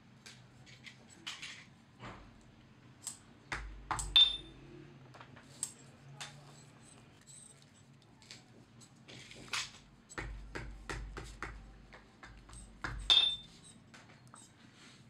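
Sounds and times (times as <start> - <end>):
short metallic ping: 13.1 - 13.4.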